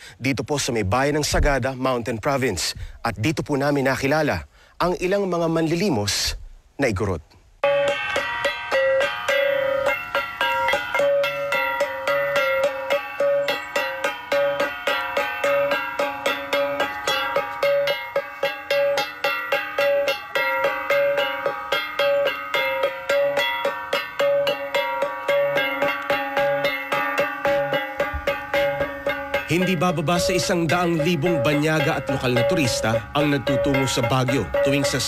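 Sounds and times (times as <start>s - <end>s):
bronze gongs struck in rhythm: 7.6s - 35.0s
low recurring beat: 7.6s - 35.0s.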